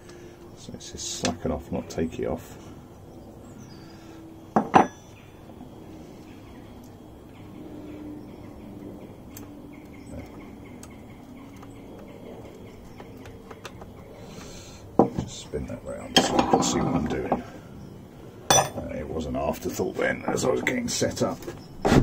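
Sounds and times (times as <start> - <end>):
sharp metal knocks: 4.6 - 5.0.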